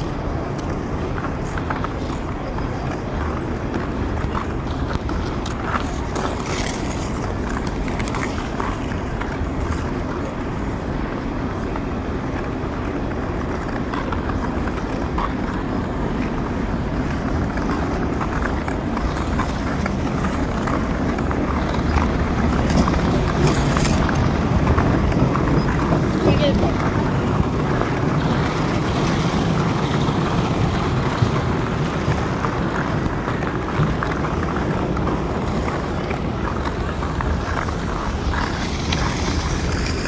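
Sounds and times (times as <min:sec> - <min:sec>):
freight train rumbling on steel bridge: 0:09.0 - 0:40.0.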